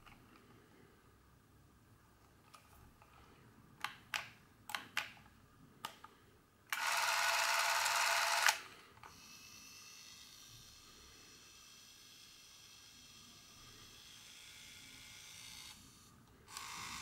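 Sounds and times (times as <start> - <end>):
camera film transport motor: 6.7 - 8.6.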